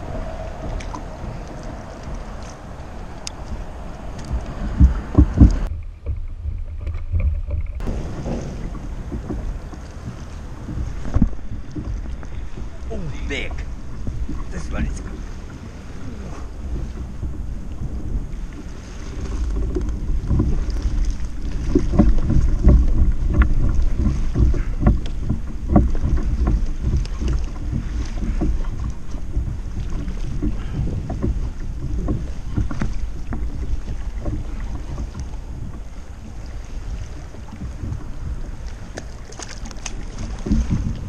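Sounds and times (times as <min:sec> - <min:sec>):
water lapping against kayak hull: 0:00.0 - 0:41.0
wind buffeting microphone: 0:00.0 - 0:41.0
small knocks: 0:19.3 - 0:35.9.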